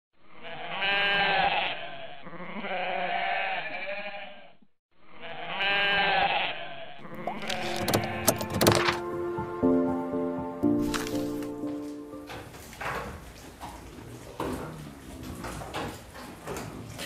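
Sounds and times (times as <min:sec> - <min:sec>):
goat bleating: 0:00.4 - 0:04.5, 0:05.1 - 0:08.4
sharp knocks: 0:07.4 - 0:09.1.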